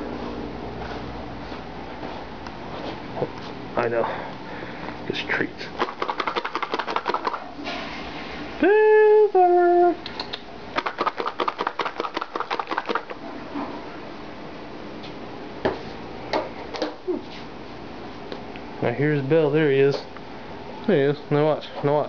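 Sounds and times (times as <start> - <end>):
treats rattling in container: 5.8 - 7.4, 10.8 - 13.2.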